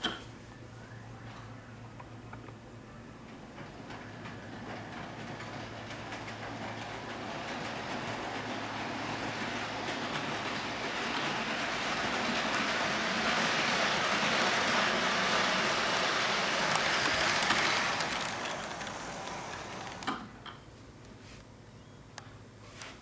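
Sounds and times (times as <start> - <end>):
model train rolling whir: 3.3 - 20.2.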